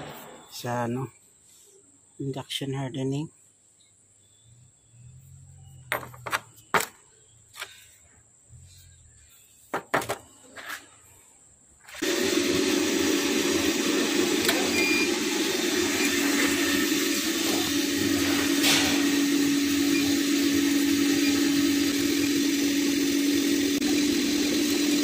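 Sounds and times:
machine humming and hissing: 12.0 - 25.0.

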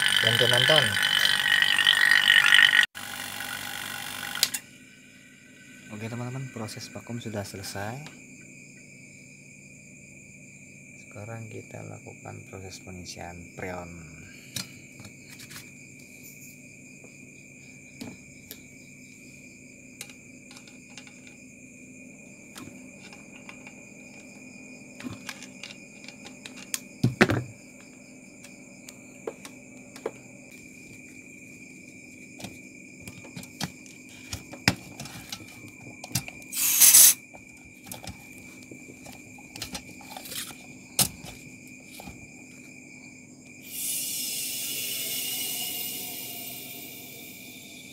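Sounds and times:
hiss of gas escaping: 36.5 - 37.2, 43.6 - 47.6.

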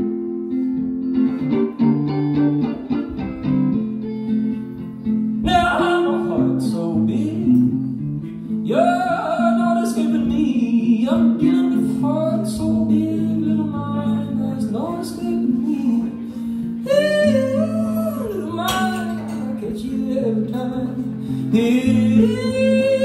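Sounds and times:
guitar accompaniment: 0.0 - 23.0
man singing: 5.4 - 23.0.

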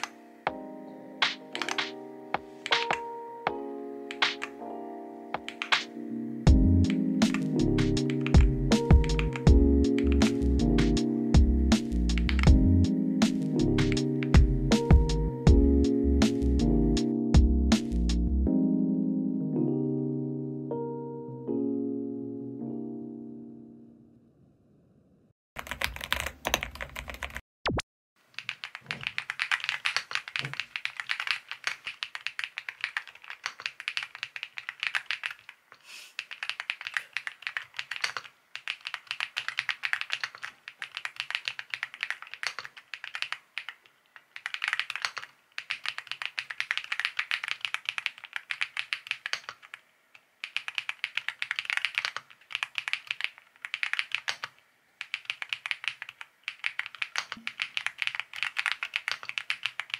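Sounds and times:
mechanical keyboard typing: 1.5 - 2.0, 2.6 - 3.1, 5.4 - 5.9, 7.2 - 10.4, 25.6 - 27.4, 28.4 - 35.6, 36.2 - 49.8, 50.4 - 59.9.

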